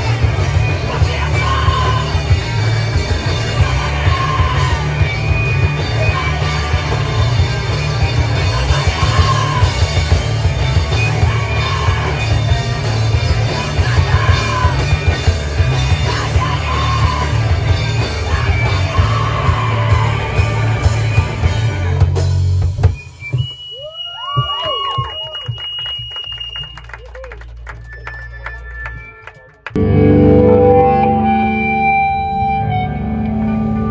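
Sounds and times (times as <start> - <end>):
electric guitar: 0.0 - 22.5, 29.7 - 33.9
drums: 0.0 - 33.9.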